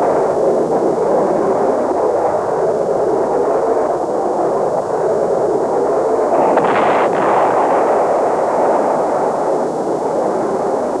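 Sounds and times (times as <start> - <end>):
jet aircraft roar: 6.3 - 8.6
sharp cracks: 6.3 - 8.9.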